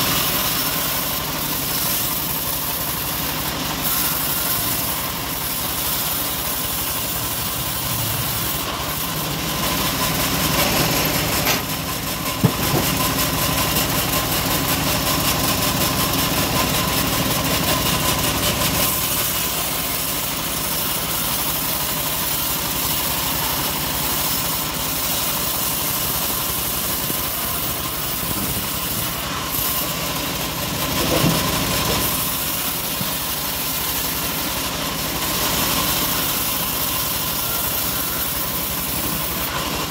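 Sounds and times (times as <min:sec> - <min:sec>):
bandsaw blade sawing log: 0:00.0 - 0:39.9.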